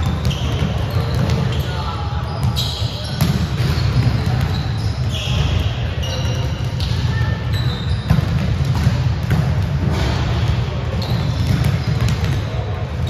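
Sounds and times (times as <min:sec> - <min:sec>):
shoe squeaks: 0:00.0 - 0:08.4, 0:10.9 - 0:12.2
volleyballs hit and bouncing: 0:00.0 - 0:13.0.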